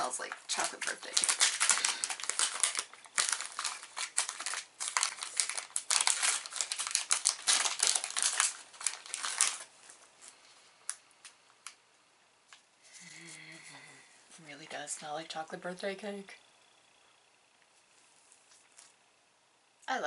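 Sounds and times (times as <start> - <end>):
plastic wrapper crinkling: 0.0 - 11.8.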